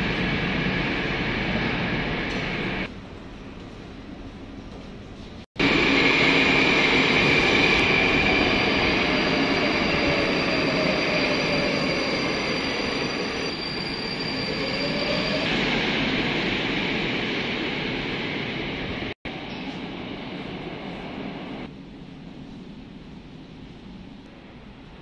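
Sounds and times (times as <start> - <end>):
metro train rumbling with whine: 0.0 - 25.0.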